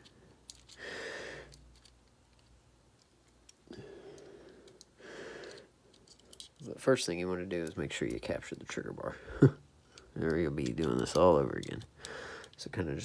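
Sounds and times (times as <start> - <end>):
small metal parts clicking: 0.0 - 6.7, 7.5 - 8.5, 9.8 - 12.8
person breathing: 0.1 - 1.6, 3.7 - 6.4, 11.9 - 12.6.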